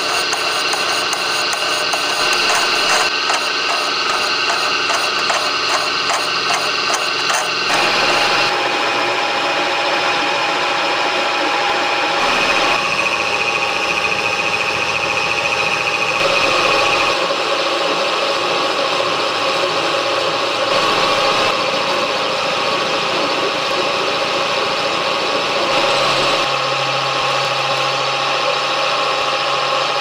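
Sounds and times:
pulsing steel cutting noise: 0.0 - 11.1
milling machine whine: 0.0 - 30.0.

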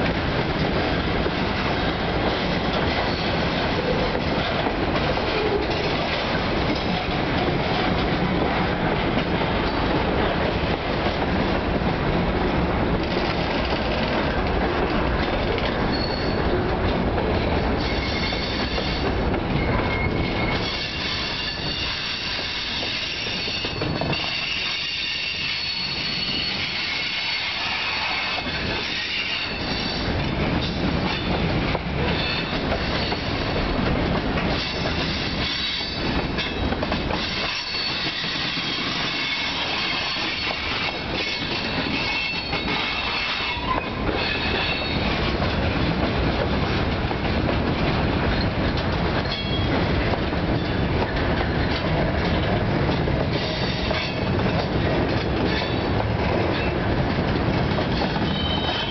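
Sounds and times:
train wheels rumbling on rails: 0.0 - 58.9
high wheel squeal: 17.8 - 19.0, 19.6 - 30.0, 37.2 - 45.1, 58.2 - 58.9.

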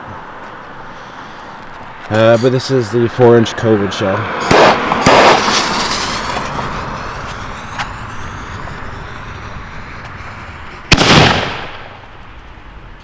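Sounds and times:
firework bang: 4.4 - 12.0
firework fuse hissing: 4.4 - 12.0.

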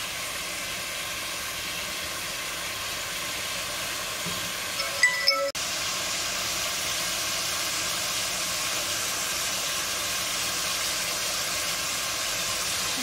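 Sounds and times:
meat sizzling in hot oil: 0.0 - 5.0, 5.6 - 13.0.

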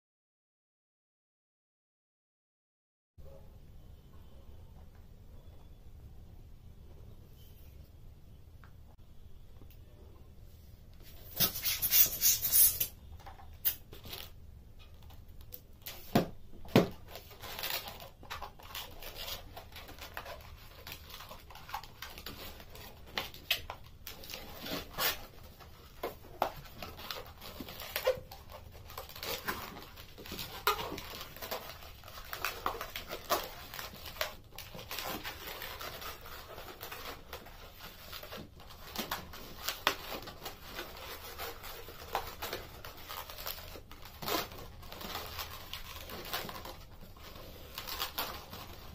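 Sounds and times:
balloons squeaking while twisted: 11.2 - 15.0, 17.0 - 48.9.

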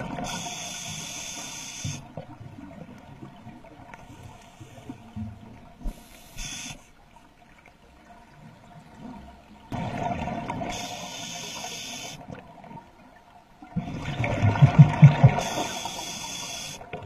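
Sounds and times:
underwater bubbling: 0.0 - 17.0
regulator breathing hiss: 0.2 - 2.1, 5.8 - 7.0, 10.7 - 12.2, 15.4 - 16.8.

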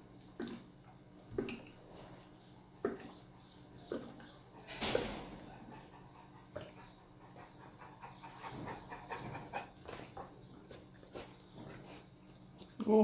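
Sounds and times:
dog panting: 4.3 - 12.2.

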